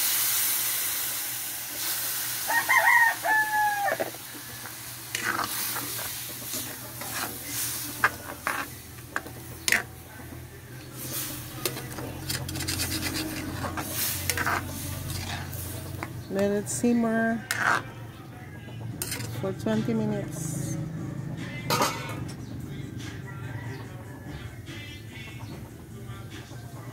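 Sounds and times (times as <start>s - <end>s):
rooster crowing: 2.4s - 4.2s, 23.1s - 24.6s
metal ladle scraping wok: 3.9s - 10.0s, 10.9s - 18.0s, 19.0s - 20.6s, 21.7s - 22.3s.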